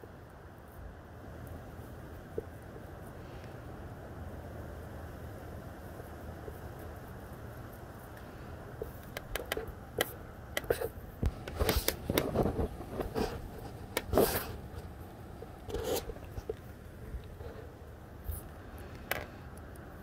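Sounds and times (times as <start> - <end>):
wind and rain: 0.0 - 20.0
close rustling and scraping: 6.5 - 20.0.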